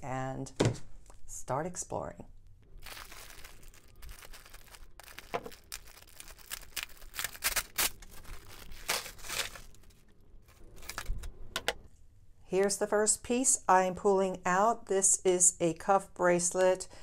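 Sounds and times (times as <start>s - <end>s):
plastic bag crinkling: 2.7s - 11.4s.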